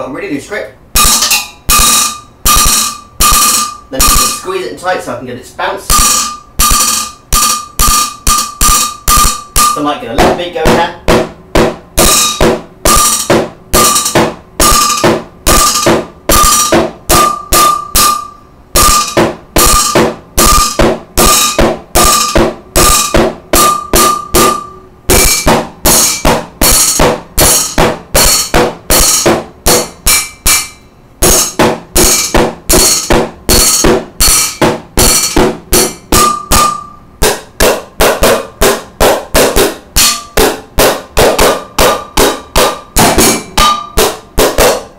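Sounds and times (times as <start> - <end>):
drumsticks on metal pot: 12.0 - 38.8.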